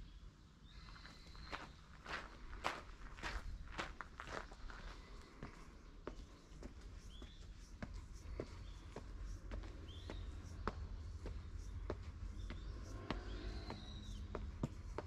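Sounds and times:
bird chirps: 0:00.0 - 0:02.3, 0:06.1 - 0:15.0
footsteps on stone steps: 0:01.4 - 0:15.0.

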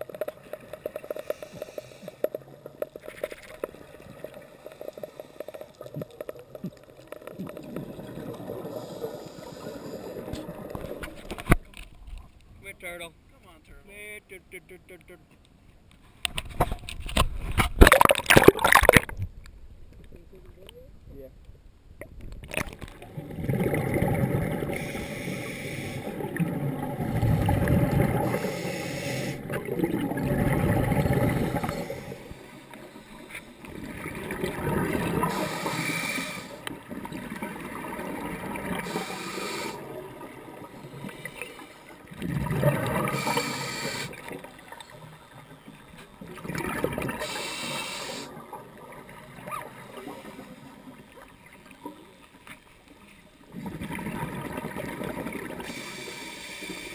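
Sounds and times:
exhaled bubbles gurgling: 0:00.0 - 0:11.4, 0:17.8 - 0:19.2, 0:22.4 - 0:52.1, 0:53.4 - 0:56.9
regulator inhale hiss: 0:01.0 - 0:02.4, 0:04.6 - 0:05.8, 0:08.6 - 0:10.3, 0:24.7 - 0:26.2, 0:28.2 - 0:29.6, 0:35.2 - 0:36.7, 0:38.8 - 0:40.0, 0:40.9 - 0:42.0, 0:43.0 - 0:44.3, 0:47.2 - 0:48.4, 0:55.6 - 0:56.9.

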